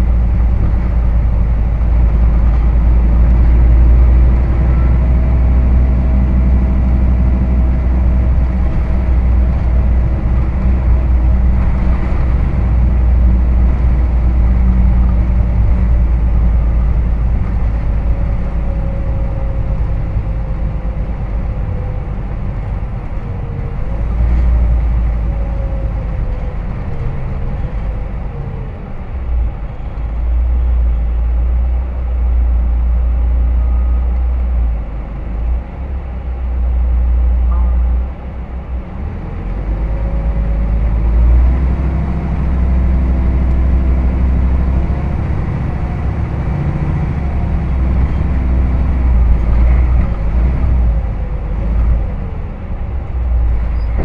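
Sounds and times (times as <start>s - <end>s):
bus diesel engine drone: 0.0s - 54.0s
road noise: 0.0s - 54.0s.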